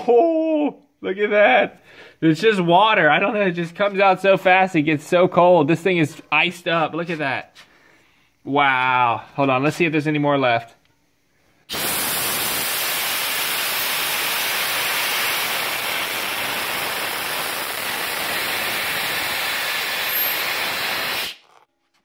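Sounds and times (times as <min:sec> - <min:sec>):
compressed air hissing from valve: 0:11.6 - 0:21.4.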